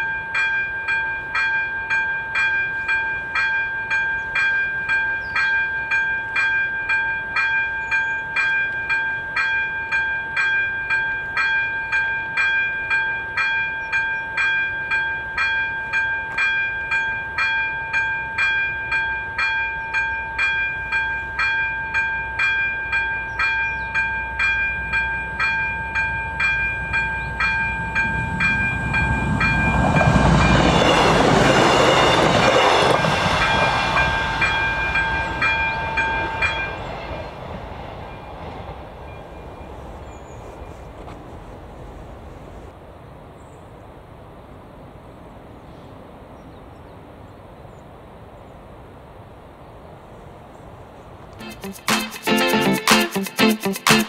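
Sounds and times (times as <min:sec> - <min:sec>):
level crossing warning bell: 0:00.0 - 0:40.0
train passing: 0:00.0 - 0:46.4, 0:47.0 - 0:54.0.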